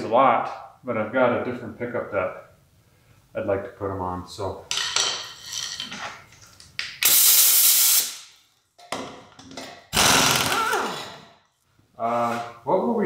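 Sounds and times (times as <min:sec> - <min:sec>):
air hissing: 0:07.0 - 0:08.4
pneumatic impact wrench: 0:07.0 - 0:08.4, 0:09.9 - 0:10.9.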